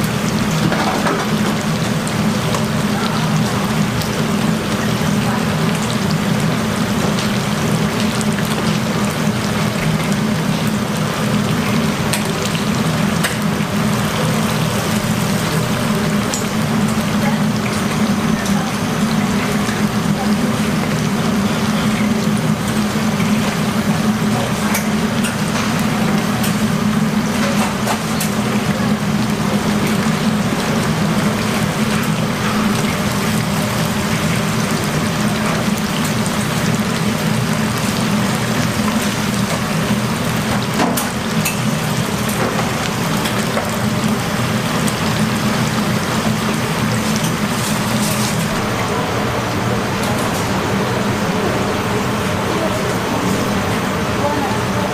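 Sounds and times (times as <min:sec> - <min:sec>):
oil sizzling in deep-fryers: 0:00.0 - 0:54.9
steady low hum: 0:48.4 - 0:54.9.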